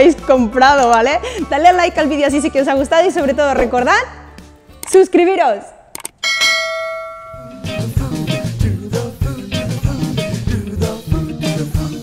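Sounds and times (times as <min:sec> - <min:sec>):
upbeat background music: 0:00.0 - 0:05.9, 0:07.3 - 0:12.0
bright chime: 0:06.2 - 0:07.7.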